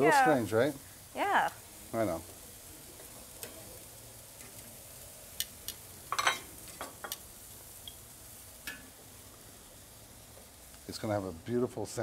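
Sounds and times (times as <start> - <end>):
food sizzling on a grill: 0.0 - 12.0
utensils and dishes clattering: 6.1 - 7.2.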